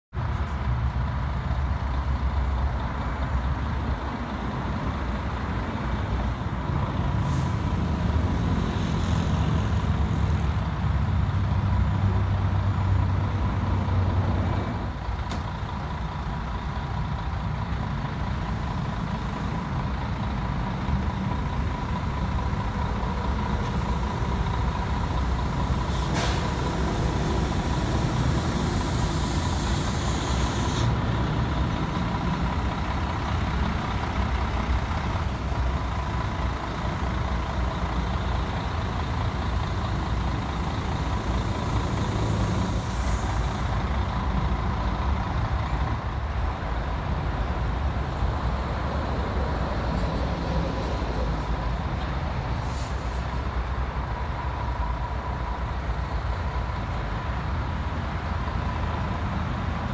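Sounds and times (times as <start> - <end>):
diesel truck engine idling: 0.2 - 59.9
air brake hisses: 7.2 - 7.8, 25.8 - 31.0, 42.4 - 43.8, 52.6 - 53.4.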